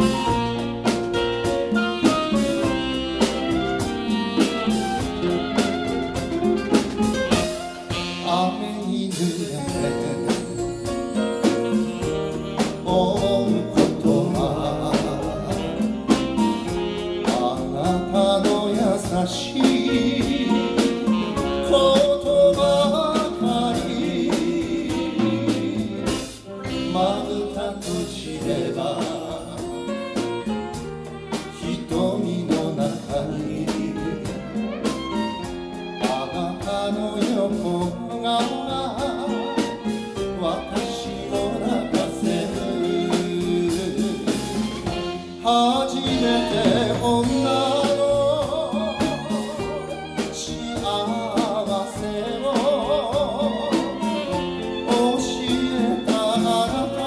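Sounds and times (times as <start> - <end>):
violin: 0.0 - 8.4, 28.4 - 57.0
live band playing pop ballad: 0.0 - 57.0
piano: 0.0 - 57.0
man singing: 7.9 - 34.8, 36.0 - 57.0.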